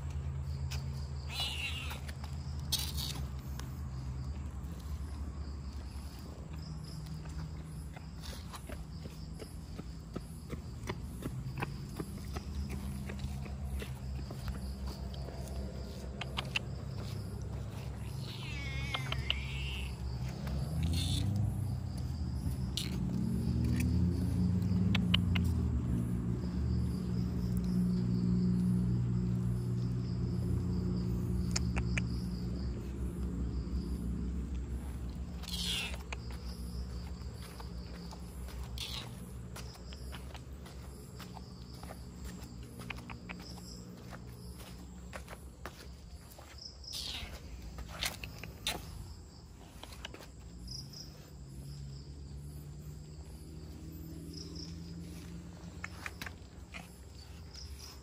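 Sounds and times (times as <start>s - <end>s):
crickets chirping: 0.0s - 58.0s
insects trilling: 0.0s - 58.0s
light ticks: 24.6s - 25.6s, 31.4s - 32.2s.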